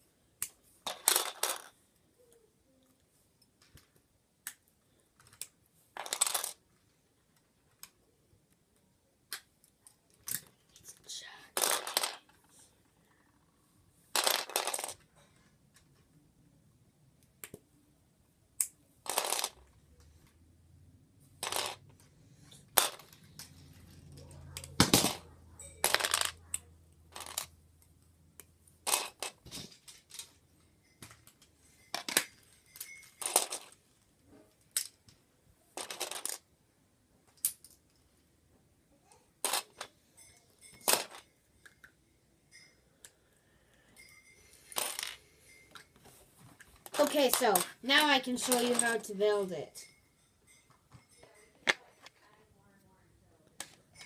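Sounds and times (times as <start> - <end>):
plastic bricks clicking and clattering: 0.5 - 1.8, 3.6 - 8.0, 11.6 - 12.5, 14.1 - 15.1, 18.6 - 19.7, 21.4 - 21.8, 22.5 - 25.2, 25.8 - 27.5, 28.4 - 30.4, 31.0 - 33.8, 35.8 - 36.4, 40.8 - 41.9, 46.7 - 49.4.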